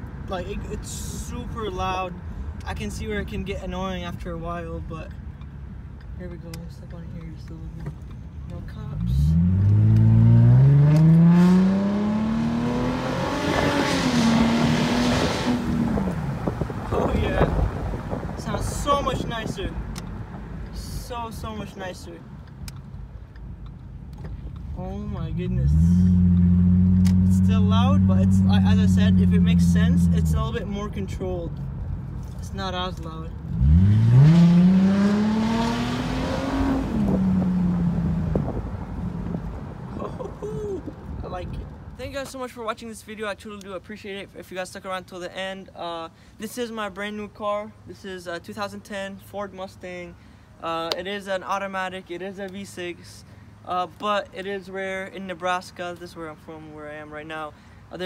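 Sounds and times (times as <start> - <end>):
car exhaust accelerating: 8.9 - 20.5, 25.2 - 32.1, 33.1 - 42.0.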